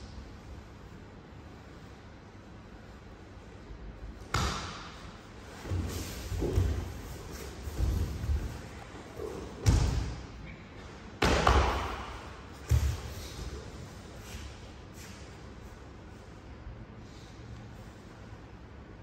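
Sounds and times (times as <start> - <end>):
bodies thudding on mats: 5.5 - 10.2.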